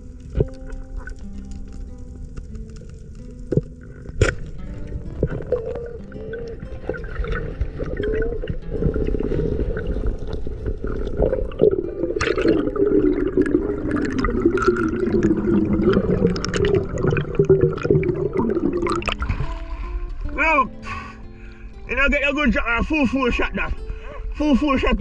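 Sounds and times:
sea water sloshing and gurgling: 0:03.8 - 0:20.2.

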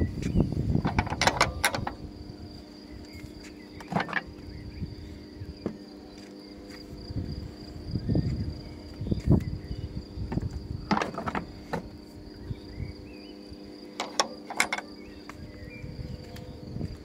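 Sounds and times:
latch clicking and knocking: 0:00.8 - 0:02.0, 0:14.0 - 0:14.9.

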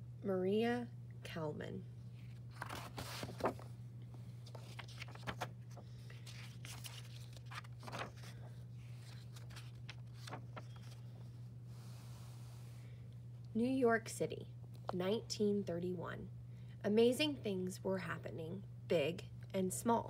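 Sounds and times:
steady low hum: 0:00.0 - 0:20.0
book pages rustling: 0:02.2 - 0:03.7, 0:04.4 - 0:11.4.

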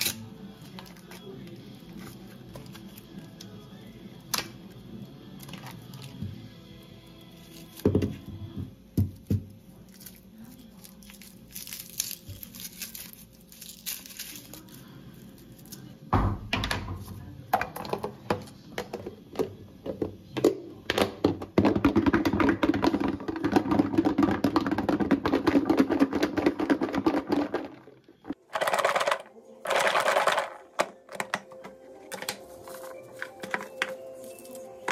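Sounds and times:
garlic skin crinkling: 0:09.8 - 0:15.8
garlic rattling in plastic container: 0:21.0 - 0:27.9, 0:28.5 - 0:31.3.

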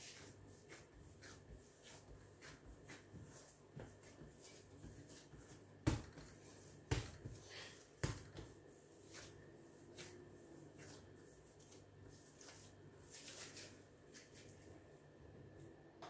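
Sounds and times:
dough thumping on countertop: 0:03.7 - 0:07.4, 0:08.0 - 0:08.6.

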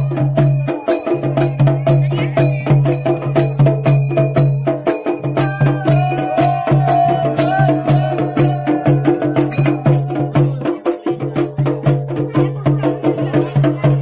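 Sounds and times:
fast drum beating: 0:00.0 - 0:14.0.

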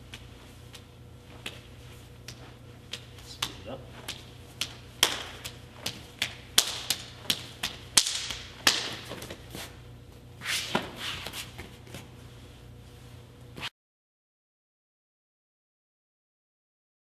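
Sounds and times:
hands slapping forearms: 0:00.1 - 0:09.4.

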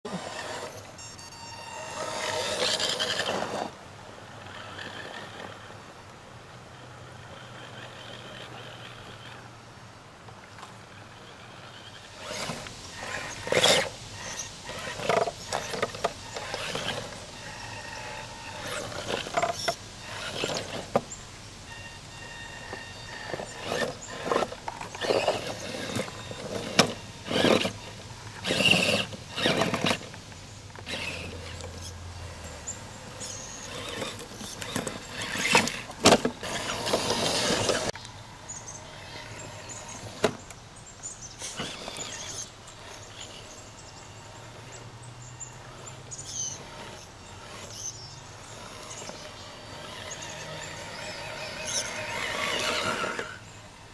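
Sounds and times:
rc car motor whining: 0:00.1 - 0:05.8, 0:07.1 - 0:09.5, 0:10.9 - 0:53.9
tyres scrabbling on wood: 0:12.2 - 0:21.2, 0:22.7 - 0:30.2, 0:33.7 - 0:38.0.

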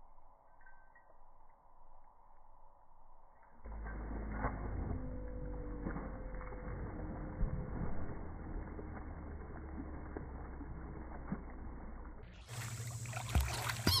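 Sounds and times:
steady low hum: 0:00.0 - 0:13.9
pool water splashing: 0:03.7 - 0:14.0.

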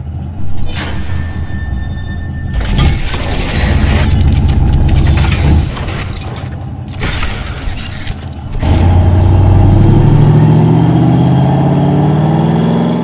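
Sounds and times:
noisy whooshing: 0:00.4 - 0:05.4.

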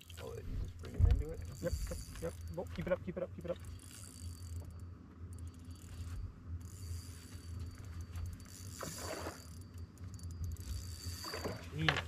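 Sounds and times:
fishing reel whirring and ratcheting: 0:00.0 - 0:12.0
steady low hum: 0:00.0 - 0:12.0.

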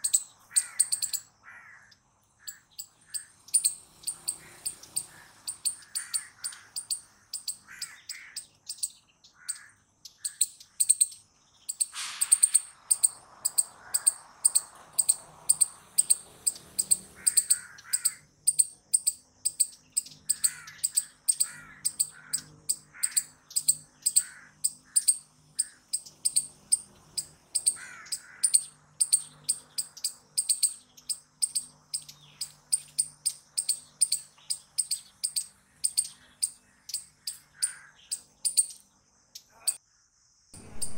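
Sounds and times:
squirrel chirping: 0:00.0 - 0:39.8, 0:40.6 - 0:40.9
loud harsh sound: 0:11.9 - 0:12.8, 0:40.6 - 0:40.9.

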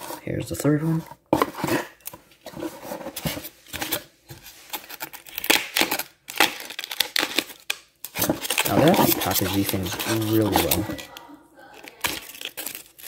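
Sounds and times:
cardboard and foam scrapes and rustles: 0:08.2 - 0:11.0.

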